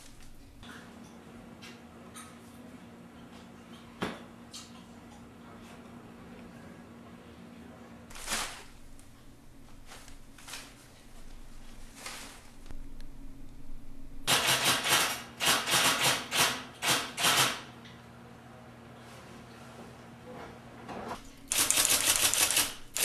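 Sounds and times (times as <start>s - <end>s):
low steady hum: 0.0s - 1.2s, 6.0s - 14.3s
typewriter keys striking: 21.5s - 23.0s.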